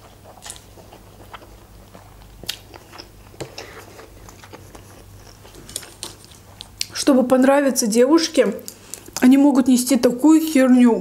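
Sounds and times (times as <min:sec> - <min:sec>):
chewing: 0:00.0 - 0:07.0.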